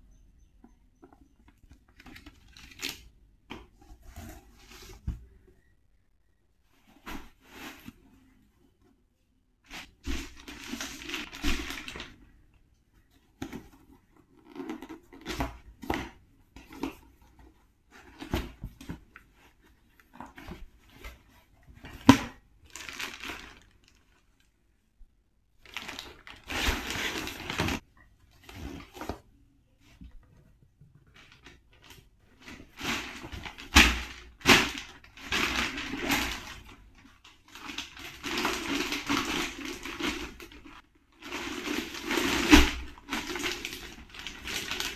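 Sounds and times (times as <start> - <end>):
packaging crinkling and rustling: 9.7 - 12.2, 20.0 - 24.4, 25.6 - 27.8, 31.1 - 44.9.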